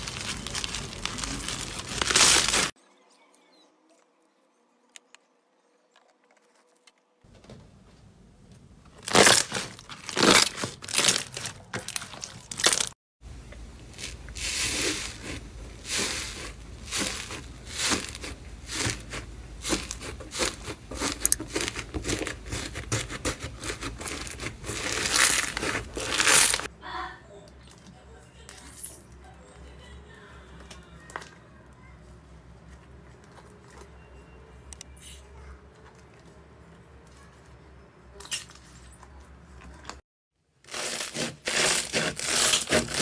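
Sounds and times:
dried slime crust crackling: 0.0s - 2.8s, 9.0s - 26.7s
slime squishing: 0.0s - 2.8s, 9.0s - 12.9s, 13.9s - 26.7s.

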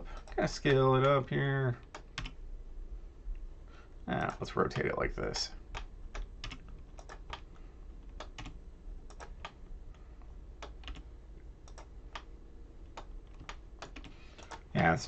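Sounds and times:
low steady hum: 0.0s - 15.0s
keyboard and mouse clicks: 1.8s - 2.4s, 5.7s - 9.6s, 10.6s - 14.7s.

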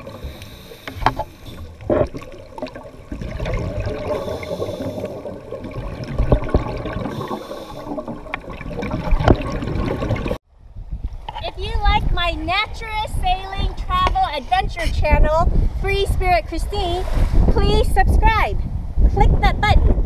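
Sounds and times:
diver breathing through regulator: 0.0s - 2.2s, 3.8s - 5.6s, 6.8s - 8.3s
exhaled bubbles rushing: 0.0s - 10.4s.

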